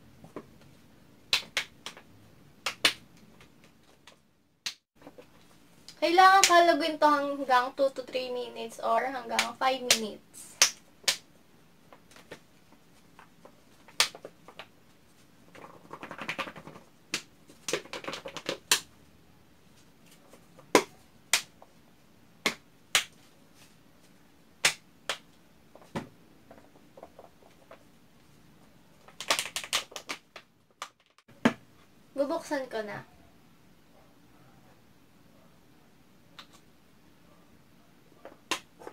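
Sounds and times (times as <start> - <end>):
plastic bottle being shaken: 13.2 - 16.9.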